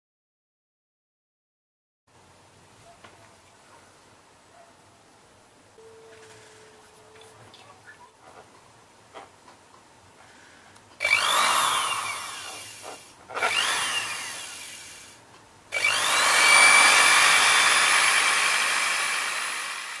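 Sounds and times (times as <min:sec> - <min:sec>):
electric motor whirring: 0:11.0 - 0:20.0.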